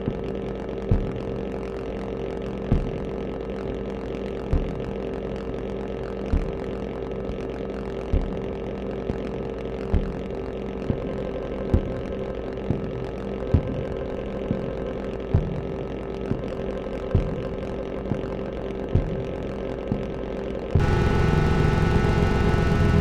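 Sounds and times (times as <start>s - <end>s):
oscillator drone: 0.0s - 23.0s.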